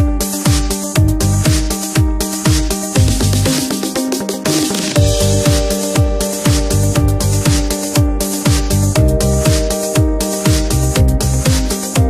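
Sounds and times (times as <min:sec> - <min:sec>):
electronic dance music: 0:00.0 - 0:12.0.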